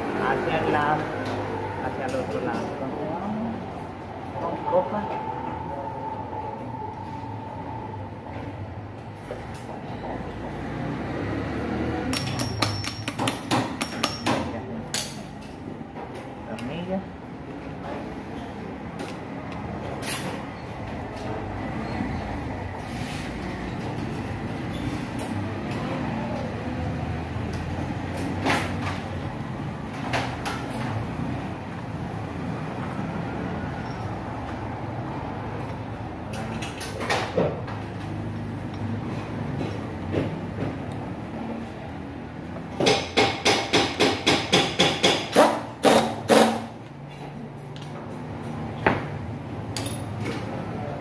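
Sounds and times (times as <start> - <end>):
low workshop hum: 0.0 - 51.0
metal tools tapping on engine: 12.1 - 15.4
metal hand tools clinking: 12.2 - 13.2.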